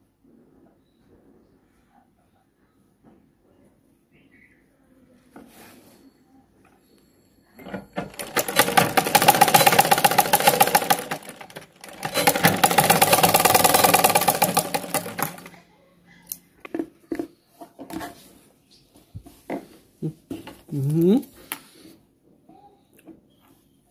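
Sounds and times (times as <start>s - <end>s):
sewing machine stitching: 7.6s - 15.6s.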